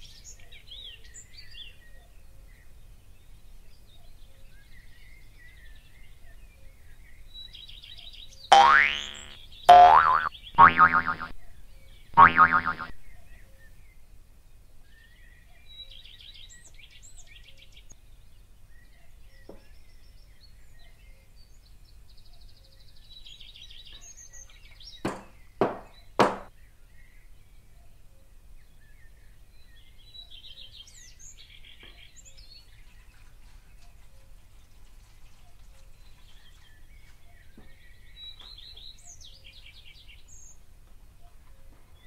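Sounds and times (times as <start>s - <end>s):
birds chirping: 8.5s - 13.5s.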